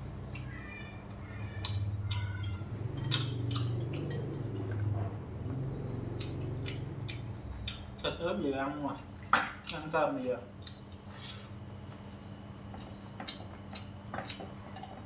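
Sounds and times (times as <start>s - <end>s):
low steady hum: 0.0s - 15.0s
chewing meat: 1.5s - 8.2s, 12.7s - 15.0s.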